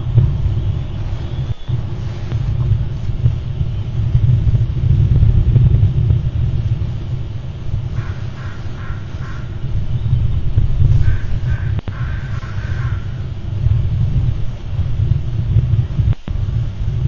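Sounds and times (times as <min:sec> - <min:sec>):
low rumble: 0:00.0 - 0:17.0
crow cawing: 0:07.9 - 0:09.6, 0:11.0 - 0:13.3.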